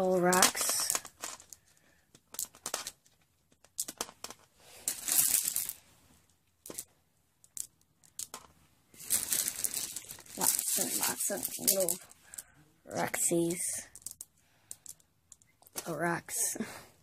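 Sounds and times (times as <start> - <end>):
small rocks clicking: 6.6 - 12.4, 13.8 - 15.9
dry grass rustling: 9.0 - 11.9.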